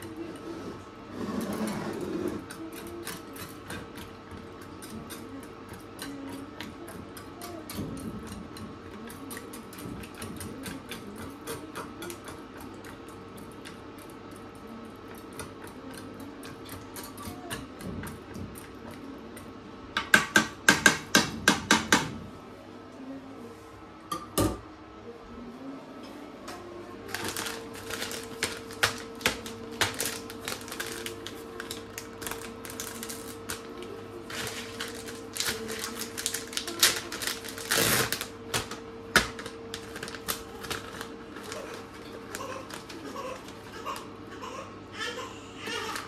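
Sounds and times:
plastic bag crinkling: 27.0 - 44.1.

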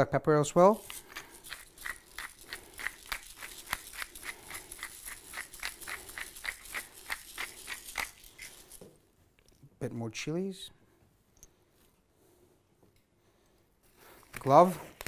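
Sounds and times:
pepper mill grinding clicks: 0.8 - 8.8.

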